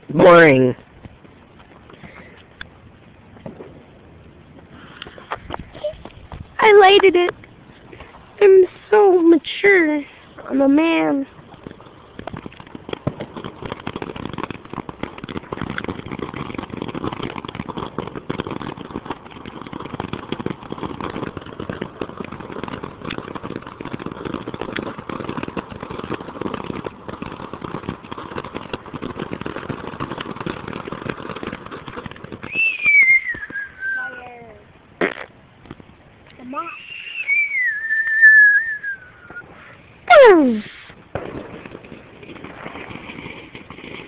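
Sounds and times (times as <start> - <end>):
fountain firework crackling and hissing: 0.0 - 44.0
whistle falling in pitch: 32.5 - 34.2, 36.7 - 39.4.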